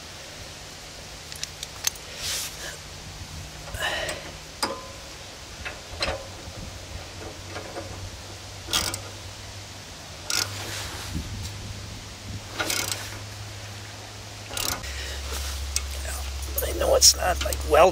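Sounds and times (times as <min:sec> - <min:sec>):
metal tools clinking and scraping: 0:01.3 - 0:02.7, 0:14.5 - 0:17.9.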